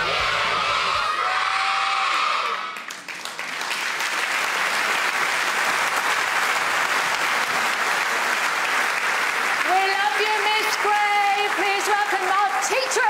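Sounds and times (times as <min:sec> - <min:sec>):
audience applauding: 0:01.8 - 0:13.0.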